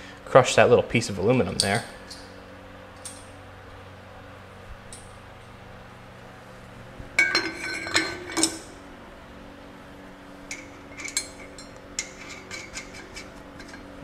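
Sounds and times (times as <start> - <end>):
ringing metal clanks: 7.2 - 8.7.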